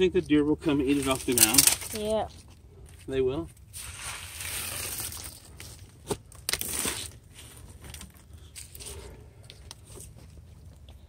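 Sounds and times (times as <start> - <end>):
dry corn kernels rustling: 0.7 - 2.2, 3.7 - 5.9.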